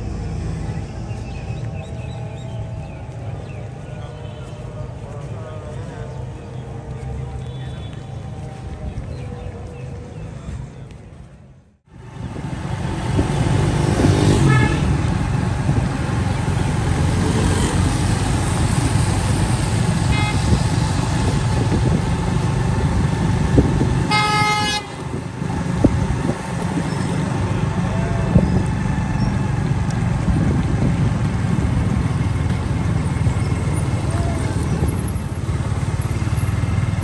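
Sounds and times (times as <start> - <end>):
traffic engine rumble: 0.0 - 37.0
car horn blast: 14.4 - 14.9, 20.1 - 20.5, 24.1 - 25.0
short horn toots: 24.1 - 25.0.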